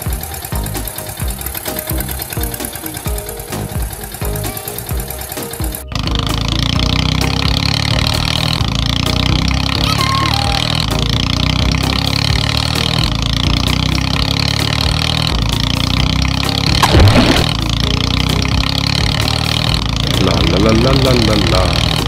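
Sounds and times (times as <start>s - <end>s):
truck engine rumbling: 0.0s - 22.0s
splash into water: 16.8s - 17.6s.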